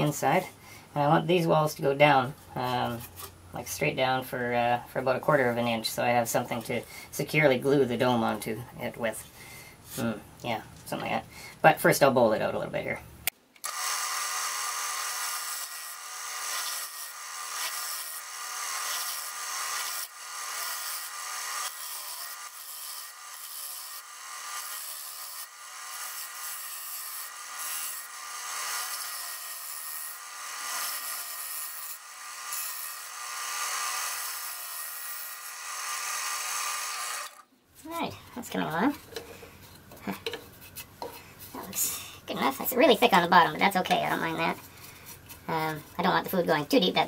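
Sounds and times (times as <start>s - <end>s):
gouge scraping wood on lathe: 13.8s - 37.4s.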